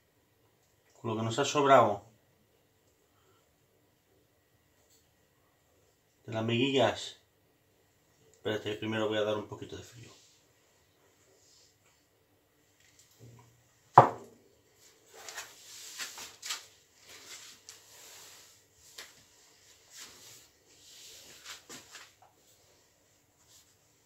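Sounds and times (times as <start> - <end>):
sharp knock on a counter: 14.0 - 14.3
rustles and light scrapes: 14.7 - 24.0.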